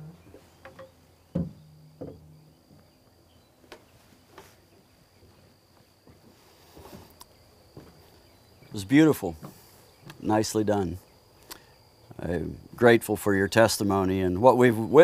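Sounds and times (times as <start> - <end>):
insect chirring: 0.0 - 3.9, 4.8 - 15.0
guitar knocking on surface: 0.7 - 2.6.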